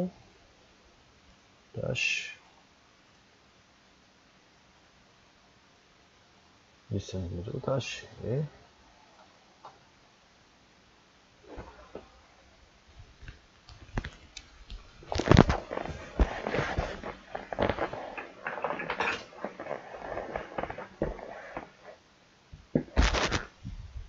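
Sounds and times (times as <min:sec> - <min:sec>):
rustling: 0:11.4 - 0:22.0, 0:22.6 - 0:23.8.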